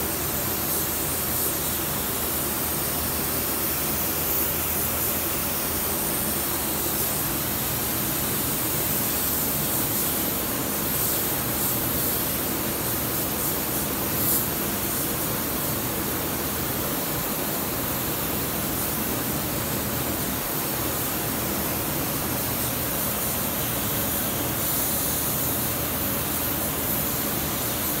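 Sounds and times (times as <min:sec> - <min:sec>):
paint spray gun hissing: 0:00.1 - 0:28.0.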